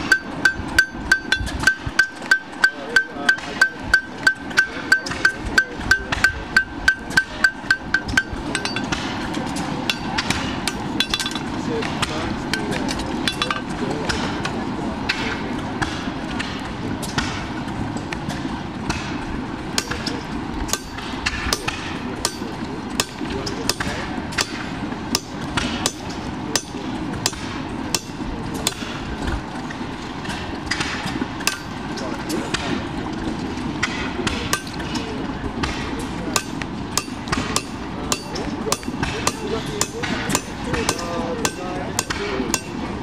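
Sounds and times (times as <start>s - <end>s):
hammer striking horseshoe on anvil: 0.0s - 9.1s, 9.9s - 11.4s, 19.8s - 29.0s, 30.7s - 31.7s, 33.8s - 35.0s, 35.6s - 42.8s.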